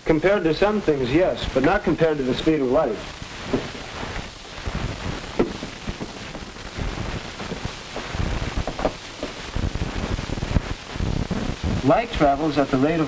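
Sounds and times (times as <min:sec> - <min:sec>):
film soundtrack hiss and crackle: 0:00.0 - 0:13.0
low thumps: 0:03.0 - 0:12.0.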